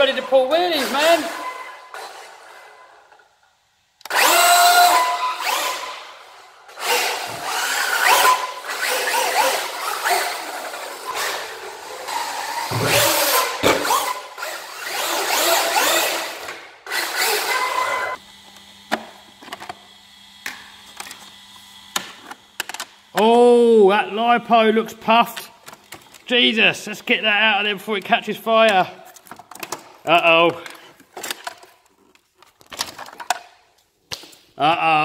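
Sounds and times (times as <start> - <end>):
rc truck motor whining: 0.2 - 3.3, 4.0 - 23.2.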